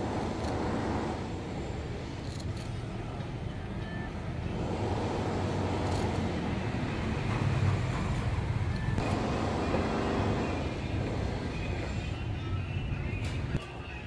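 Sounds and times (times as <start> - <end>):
vehicle engine rumble: 0.0 - 13.6
road noise: 0.0 - 14.0.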